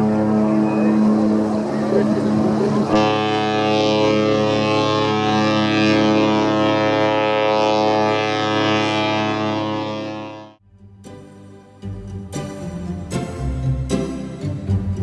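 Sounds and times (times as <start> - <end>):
ship horn long blast: 0.0 - 10.6.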